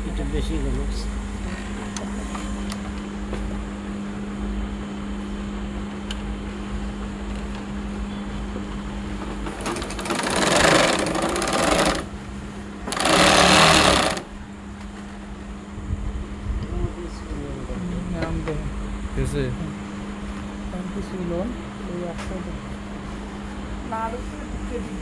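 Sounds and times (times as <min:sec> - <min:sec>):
steady hum: 0:00.0 - 0:25.0
sewing machine stitching: 0:09.5 - 0:12.1, 0:12.9 - 0:14.3.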